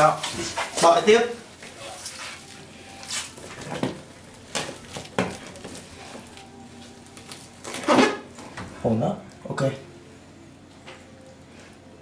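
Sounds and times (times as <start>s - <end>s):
cling film crinkling: 0.1s - 8.5s.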